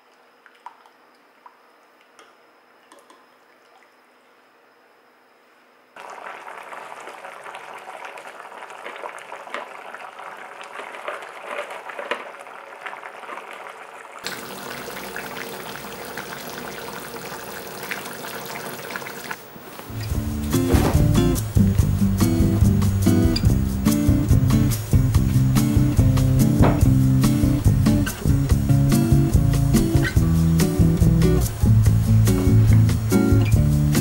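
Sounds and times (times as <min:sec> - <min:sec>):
stew bubbling and popping: 0:06.0 - 0:19.4
guitar music: 0:19.9 - 0:34.0.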